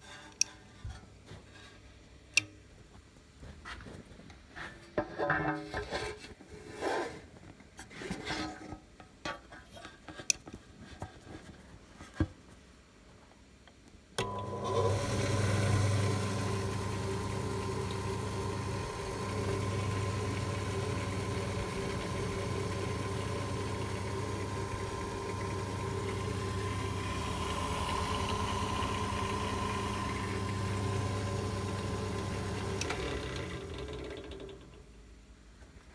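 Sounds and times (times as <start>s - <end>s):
drill press motor humming: 14.2s - 34.8s.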